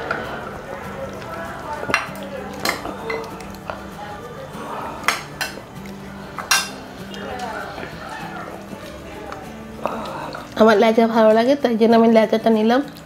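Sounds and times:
metal spoon clinking on ceramic: 6.4 - 6.8.

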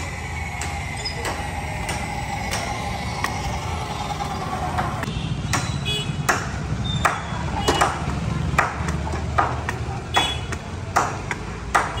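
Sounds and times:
low hum: 0.0 - 5.1.

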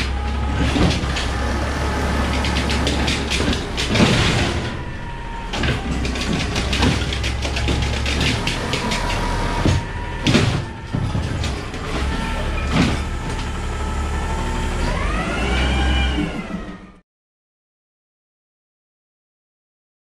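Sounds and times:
metal clanks: 0.0 - 13.6
garbage truck running: 0.0 - 17.0.

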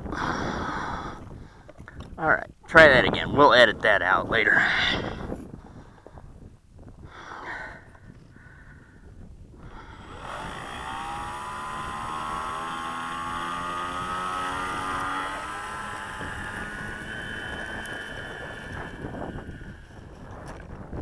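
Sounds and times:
electric motor propeller whine: 9.5 - 21.0.

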